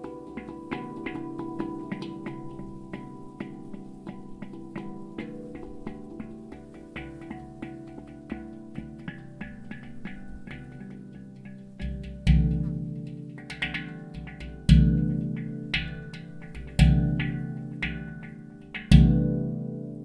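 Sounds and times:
handpan played by hand: 0.0 - 20.0.

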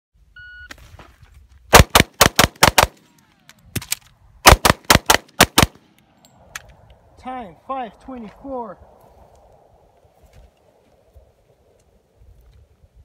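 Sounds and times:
rapid pistol shots: 1.7 - 3.0, 4.4 - 5.8.

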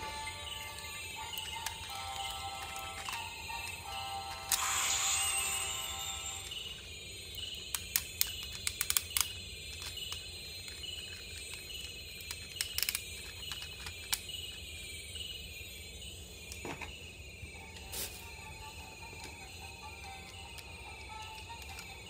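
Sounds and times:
faint high chirp: 0.0 - 8.6
plastic toy parts clicking: 0.7 - 4.8, 7.3 - 14.7, 19.1 - 22.0.

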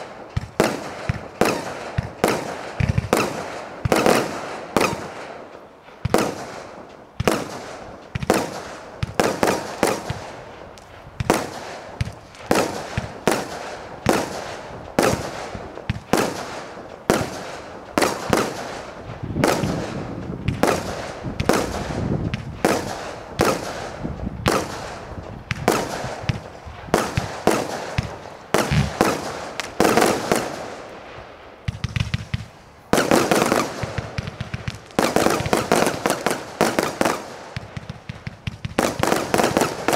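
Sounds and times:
firework shots and air bursts: 0.0 - 39.9.

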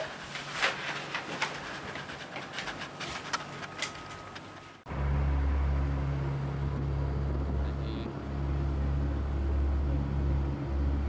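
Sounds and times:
people rustling and clicking: 0.0 - 4.8
vehicle engine humming: 3.6 - 11.0.

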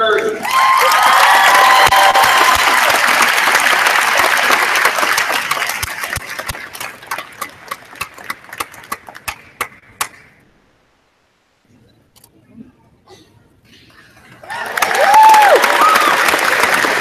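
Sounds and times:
audience applauding: 0.0 - 10.2, 14.4 - 17.0
scattered single claps: 4.2 - 10.4.

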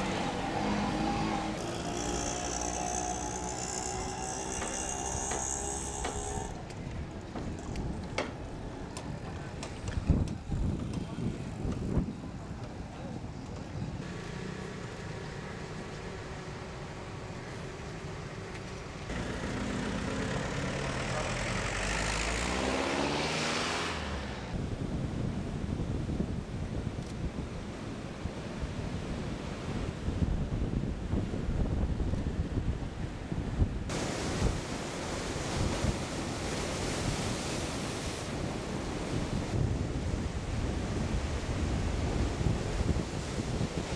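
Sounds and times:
vehicle engine accelerating past: 0.0 - 3.3, 19.1 - 24.6
wind buffeting microphone: 2.4 - 14.0, 24.5 - 43.9
rough surf breaking on shore: 33.9 - 43.9.

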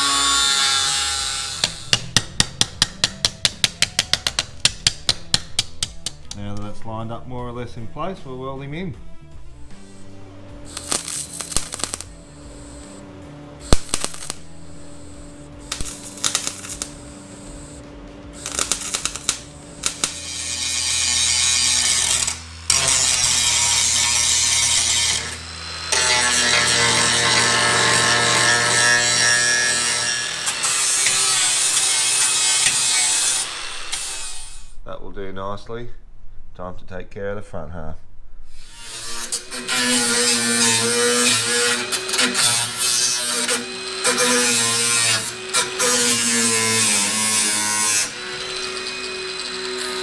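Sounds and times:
power tool grinding metal: 0.0 - 2.2, 9.6 - 13.0, 13.6 - 34.7, 38.5 - 50.0
welding crackling bursts: 10.7 - 13.0, 13.6 - 17.8, 18.4 - 34.7, 38.6 - 48.1.

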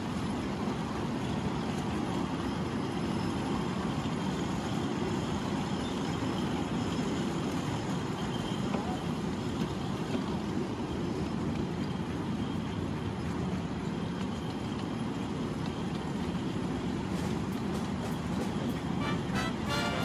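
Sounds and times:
model steam locomotive running: 0.0 - 20.0.

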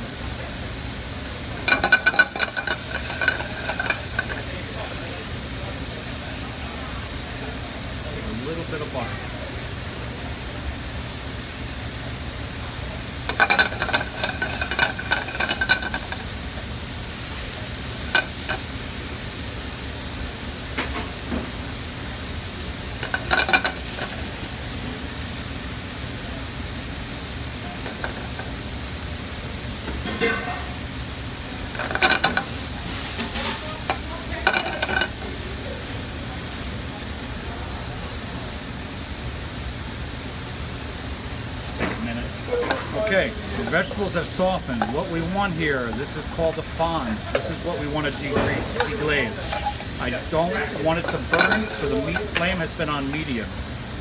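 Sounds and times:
food sizzling in a pan: 0.0 - 54.0
utensil clinking and scraping pan: 1.6 - 4.7, 13.3 - 16.6, 18.1 - 18.7, 23.0 - 24.2, 27.8 - 28.5, 31.7 - 35.2, 42.5 - 53.5.

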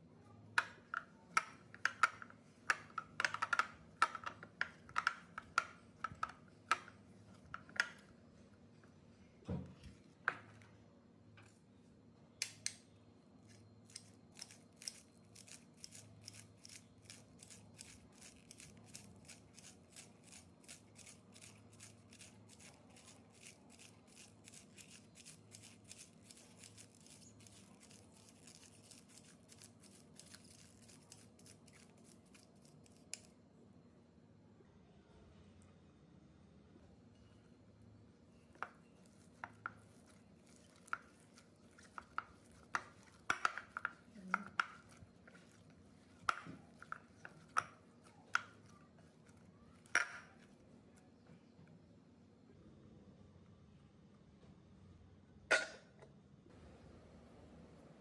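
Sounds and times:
hands mixing dough in a bowl: 0.4 - 11.7, 13.4 - 33.3, 38.0 - 51.6.

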